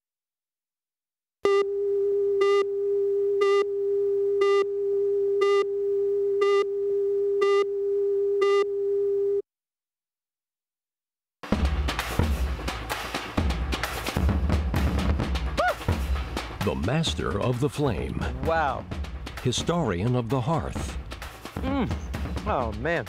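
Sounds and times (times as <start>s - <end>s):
music with drums: 11.4s - 23.0s.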